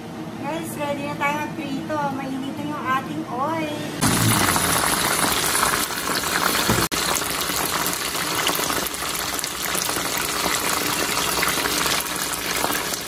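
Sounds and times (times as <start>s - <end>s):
chicken deep-frying in oil: 4.0s - 13.0s.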